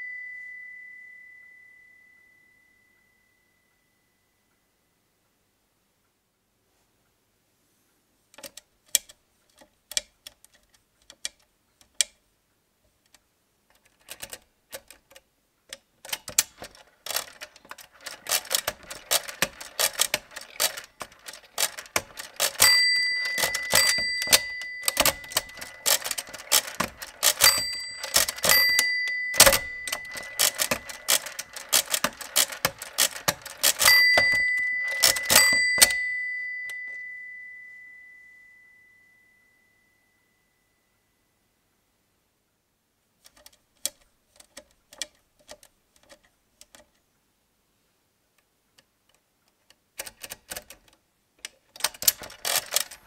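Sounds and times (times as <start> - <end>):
calculator bell ringing: 0.0 - 3.2, 16.6 - 39.9
mechanical calculator clicking: 8.4 - 12.2, 13.7 - 37.4, 43.2 - 46.9, 50.0 - 53.0.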